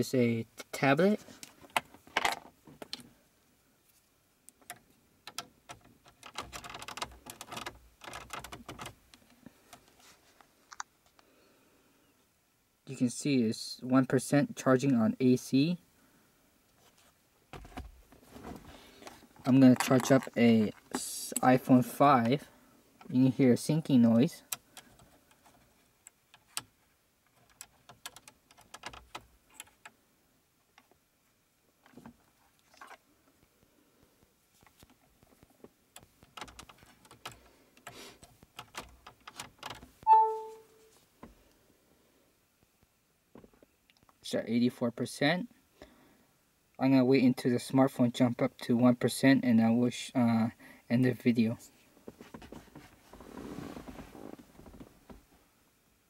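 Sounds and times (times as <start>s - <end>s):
usb cable rustling: 3.9s - 10.9s, 16.7s - 22.4s, 34.5s - 40.0s.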